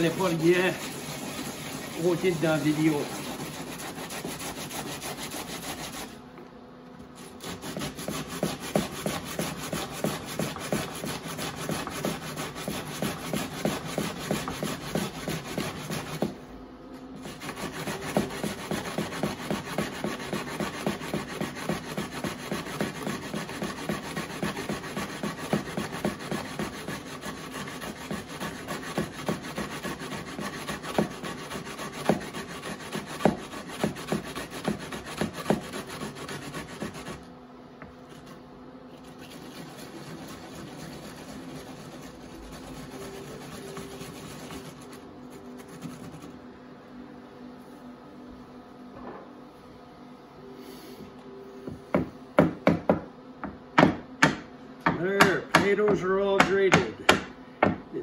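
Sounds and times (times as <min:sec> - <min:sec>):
potatoes grated on metal grater: 0:00.0 - 0:06.1, 0:07.2 - 0:16.3, 0:17.2 - 0:37.2, 0:39.0 - 0:46.3.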